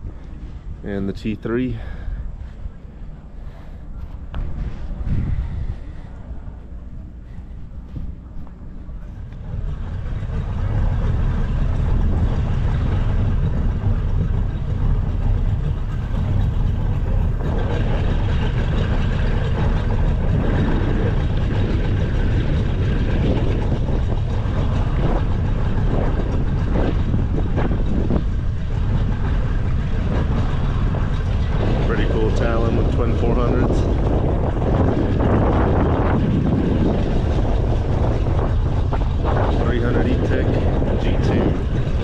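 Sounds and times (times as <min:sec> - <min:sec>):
outboard motor running: 0:00.0 - 0:42.0.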